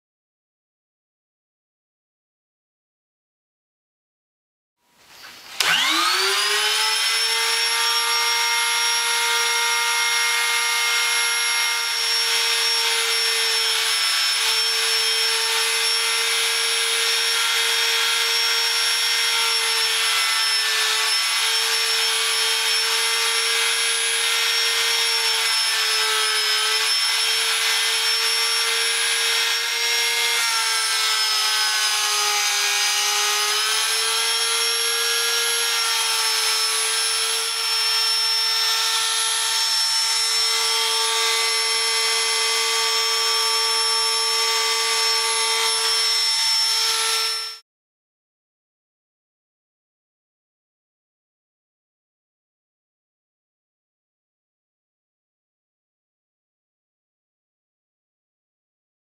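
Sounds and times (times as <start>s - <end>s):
electric router whining: 5.5s - 47.6s.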